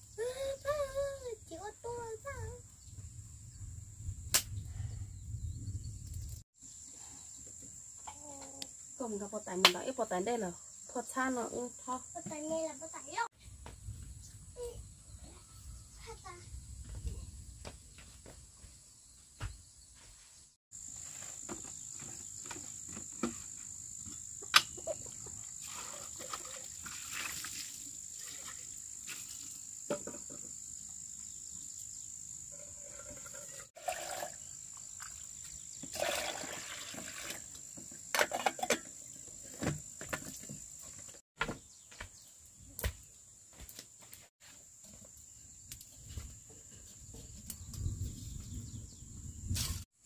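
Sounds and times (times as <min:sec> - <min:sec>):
water pouring and splashing: 0:25.4 - 0:29.6, 0:32.9 - 0:38.9.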